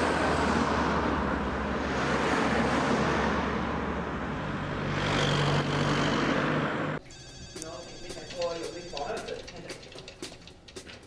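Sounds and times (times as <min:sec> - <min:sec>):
cars passing on road: 0:00.0 - 0:07.0.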